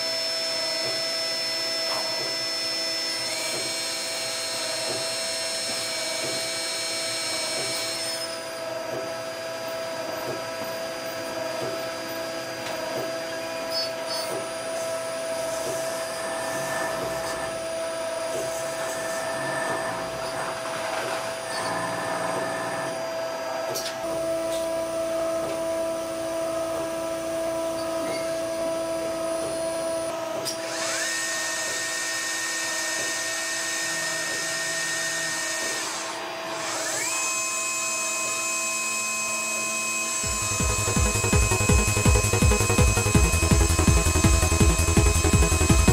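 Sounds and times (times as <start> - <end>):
lathe spindle whine: 0.0 - 45.9.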